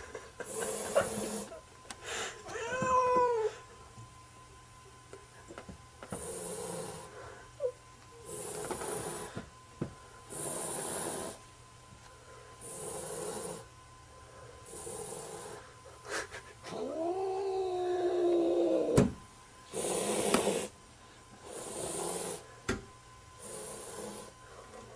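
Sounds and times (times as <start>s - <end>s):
cat yowling: 2.5s - 3.6s, 16.8s - 19.0s
cat hissing: 19.7s - 20.7s.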